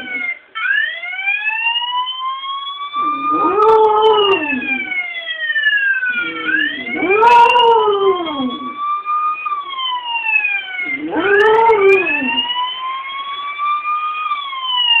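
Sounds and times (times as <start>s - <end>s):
police siren wailing: 0.0s - 15.0s
dog howling: 3.0s - 5.0s, 6.1s - 8.8s, 10.8s - 12.5s.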